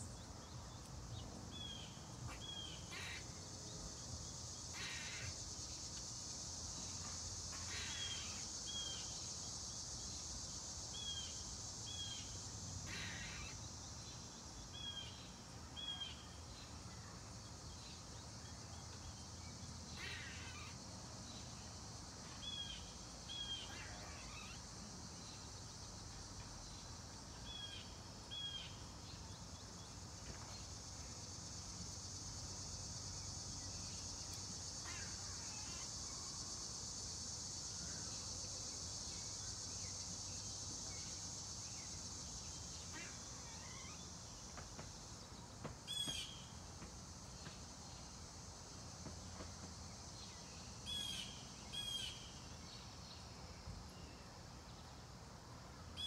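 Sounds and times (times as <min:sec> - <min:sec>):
high-pitched insect chorus: 0:00.0 - 0:56.0.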